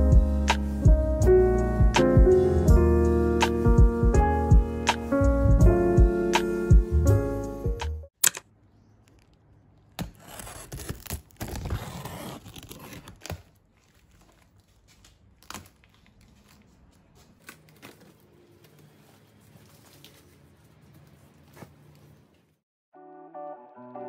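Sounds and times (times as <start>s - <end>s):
piano music: 0.0s - 8.1s, 23.0s - 24.0s
plastic crinkling: 8.8s - 22.5s
packing tape tearing: 9.9s - 16.3s.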